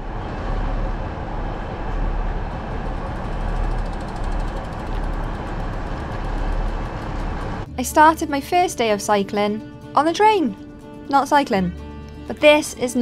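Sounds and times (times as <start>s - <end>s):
train rumbling: 0.0s - 8.4s
faint regular ticking: 2.6s - 7.7s.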